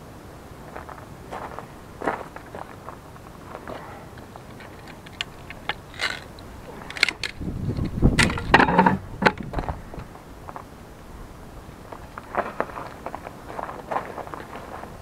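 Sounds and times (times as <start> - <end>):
dry sticks crunching and snapping: 4.1 - 9.6.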